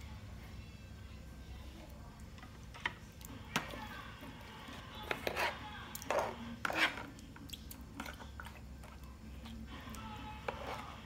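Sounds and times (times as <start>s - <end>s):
spoon scraping plastic tray: 4.6s - 7.2s, 10.4s - 11.0s.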